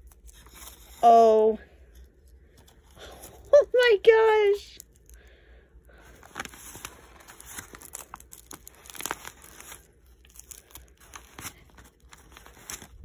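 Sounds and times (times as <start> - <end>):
plastic wrap crinkling and tearing: 0.0 - 1.0, 6.0 - 13.0.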